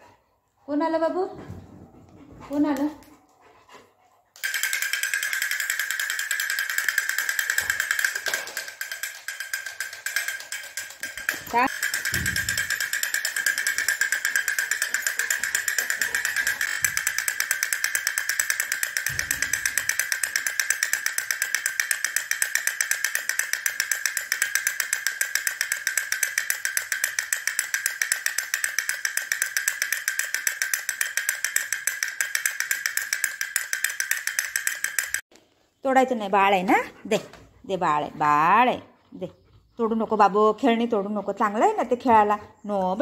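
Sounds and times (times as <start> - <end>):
toy drum fast clicking beat: 4.4 - 35.3.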